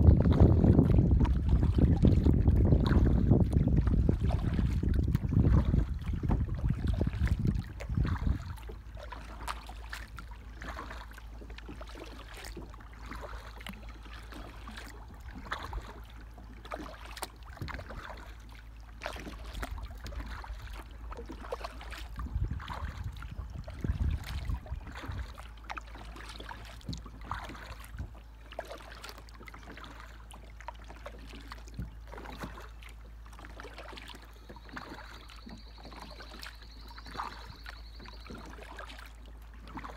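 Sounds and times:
wind rumble on microphone: 0:00.0 - 0:10.9, 0:17.4 - 0:18.3, 0:19.2 - 0:25.4, 0:26.5 - 0:28.2
small clicks and splashes: 0:00.0 - 0:39.9
water lapping against boat hull: 0:00.0 - 0:39.9.

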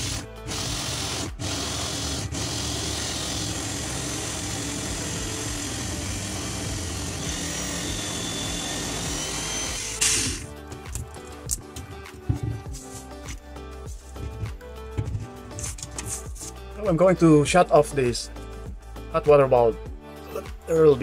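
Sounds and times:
electric drill with hole saw: 0:00.0 - 0:10.5.

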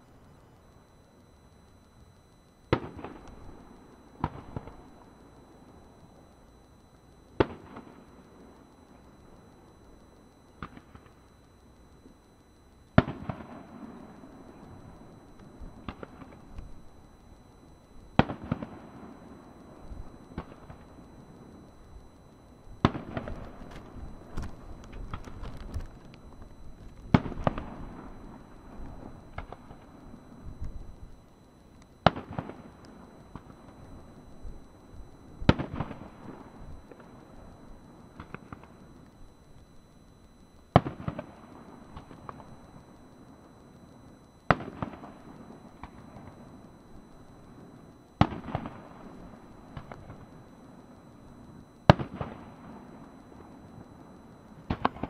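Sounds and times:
fireworks bursting with loud bangs: 0:02.7 - 0:03.3, 0:07.4 - 0:08.0, 0:13.0 - 0:14.6, 0:15.4 - 0:16.7, 0:18.2 - 0:19.2, 0:22.8 - 0:30.1, 0:32.0 - 0:33.8, 0:35.4 - 0:37.1, 0:40.7 - 0:42.4, 0:44.5 - 0:46.4, 0:48.2 - 0:50.3, 0:51.8 - 0:53.5, 0:54.7 - 0:55.0
small firework cracks: 0:02.7 - 0:03.6, 0:07.4 - 0:08.0, 0:10.6 - 0:11.2, 0:20.4 - 0:21.0, 0:22.8 - 0:29.8, 0:31.8 - 0:33.6, 0:40.6 - 0:42.5, 0:44.5 - 0:46.4, 0:48.2 - 0:50.3, 0:51.9 - 0:53.1, 0:54.7 - 0:55.0.

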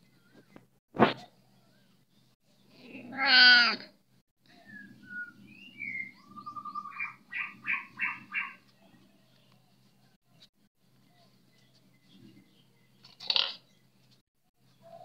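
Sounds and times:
birds chirping: 0:04.4 - 0:15.0.

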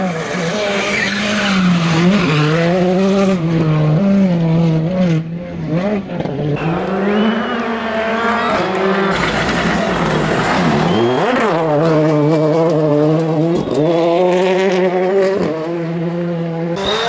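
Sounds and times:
rally car engine revving: 0:00.0 - 0:17.0
second car engine revving: 0:00.0 - 0:17.0.

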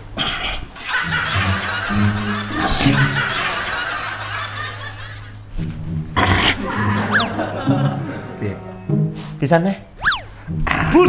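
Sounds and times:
recorded laughter: 0:00.8 - 0:05.5, 0:06.2 - 0:08.8
background music with low note: 0:00.9 - 0:11.0.

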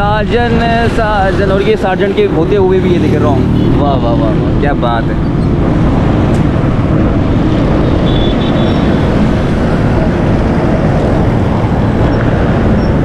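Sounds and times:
street traffic engines: 0:00.0 - 0:13.0.

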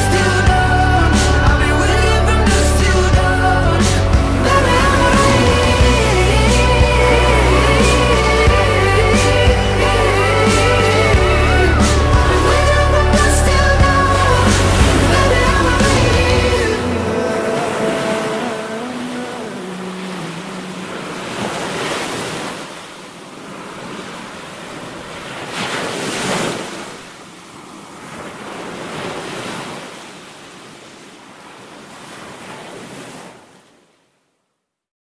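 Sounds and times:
music: 0:00.0 - 0:17.6
surf breaking on rocks: 0:01.2 - 0:27.1.

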